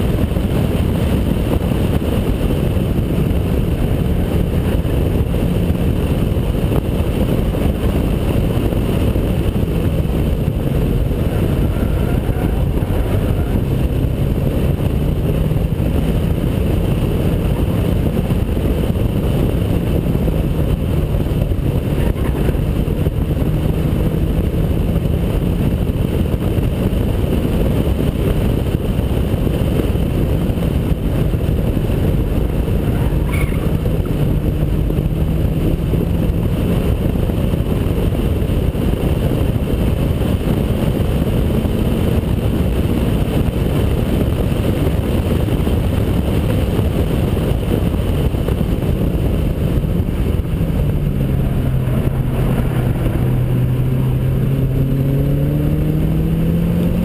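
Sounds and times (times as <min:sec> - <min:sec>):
wind rush: 0:00.0 - 0:57.0
car engine revving hard: 0:48.0 - 0:57.0.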